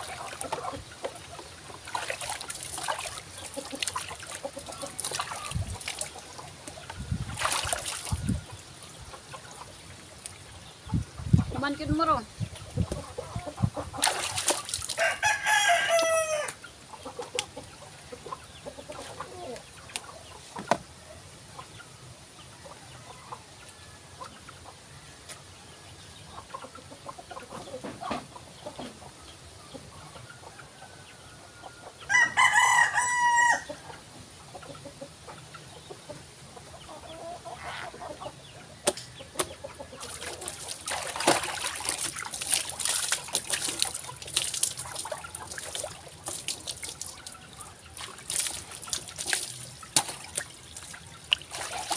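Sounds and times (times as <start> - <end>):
water poured and splashing: 0.0 - 8.5, 13.9 - 15.0, 40.0 - 51.9
rooster crowing: 15.0 - 16.6, 31.3 - 33.8.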